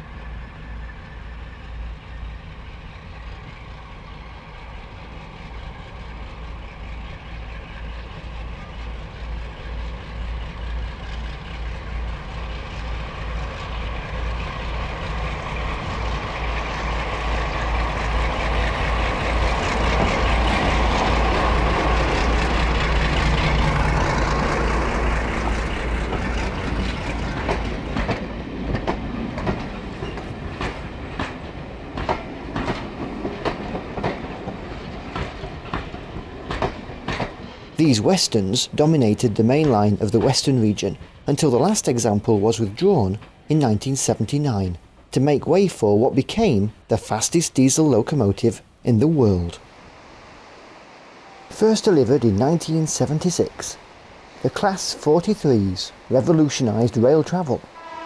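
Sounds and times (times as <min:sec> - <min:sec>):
diesel locomotive passing: 0:00.0 - 0:58.0
wheels clicking over rail joints: 0:13.6 - 0:37.6.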